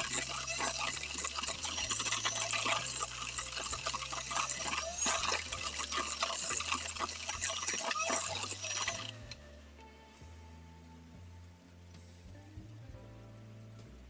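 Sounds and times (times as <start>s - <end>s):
electric hand mixer running: 0.0s - 9.4s.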